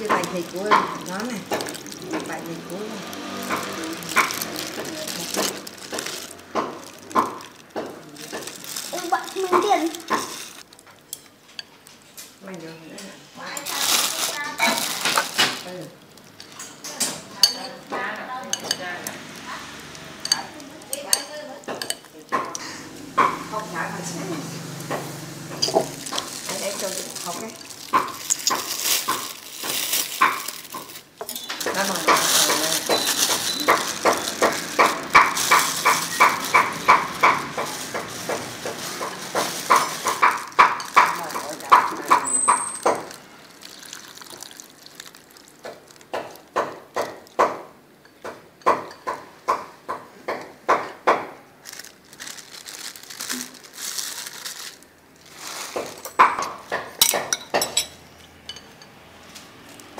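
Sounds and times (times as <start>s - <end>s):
utensils clinking against ceramic bowl: 0.0s - 11.9s, 16.2s - 23.6s, 24.8s - 43.2s, 55.8s - 59.0s
plastic bag crinkling: 0.0s - 12.6s, 13.4s - 22.4s, 24.4s - 47.5s, 51.4s - 57.9s.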